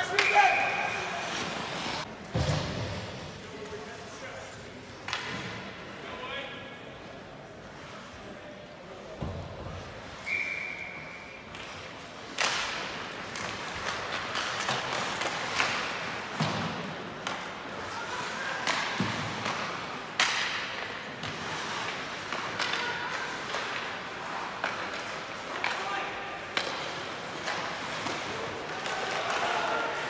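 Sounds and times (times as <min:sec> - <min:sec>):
hockey sticks and puck knocks: 0:00.0 - 0:03.3, 0:05.0 - 0:05.6, 0:11.6 - 0:30.0
whistle tone: 0:10.2 - 0:11.5.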